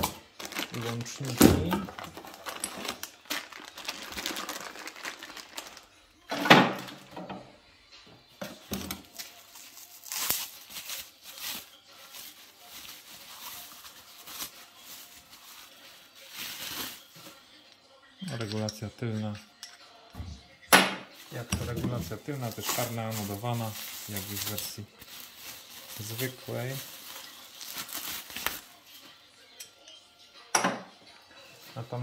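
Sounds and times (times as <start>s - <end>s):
bubble wrap crinkling: 0.0s - 6.0s, 8.9s - 17.4s, 21.1s - 29.1s.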